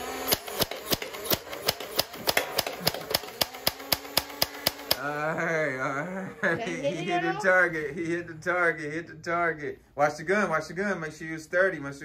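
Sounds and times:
toy blaster firing clicks: 0.2s - 5.0s.

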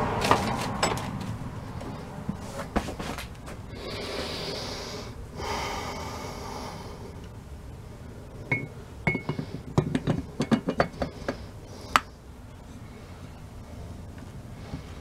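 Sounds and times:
metal clinks and knocks: 0.3s - 1.3s.

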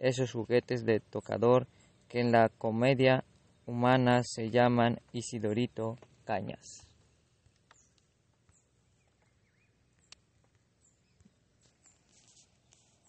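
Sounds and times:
faint background hiss: 0.0s - 13.0s
soft clicks: 7.4s - 10.6s.

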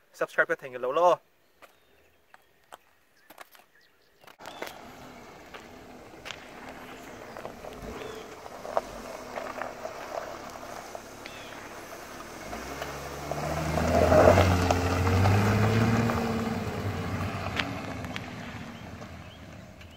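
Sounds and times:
car engine accelerating past: 4.4s - 19.9s.

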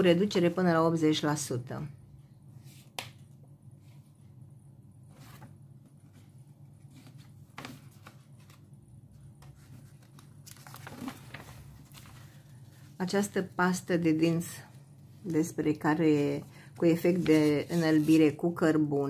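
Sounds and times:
faint low hum: 0.0s - 19.0s
glossy paper rustling and crinkling: 5.4s - 13.5s, 16.8s - 18.4s.

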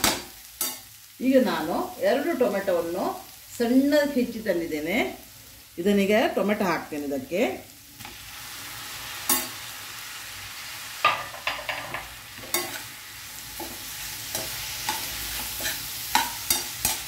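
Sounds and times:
spoon clinking and scraping pan: 0.0s - 1.0s, 9.2s - 9.6s, 11.0s - 12.9s, 13.6s - 17.0s
vegetables sizzling in a pan: 0.0s - 17.0s.

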